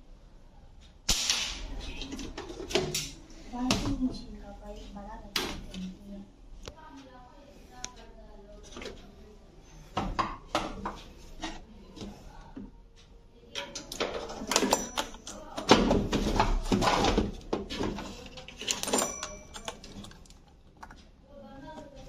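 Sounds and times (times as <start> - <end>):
plastic parts clicking and rattling: 13.5 - 21.1.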